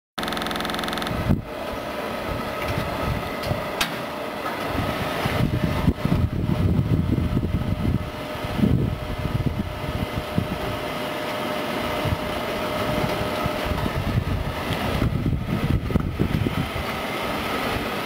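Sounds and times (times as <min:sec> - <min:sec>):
machine motor humming: 0:00.2 - 0:01.5
thin steady whine: 0:00.2 - 0:04.5.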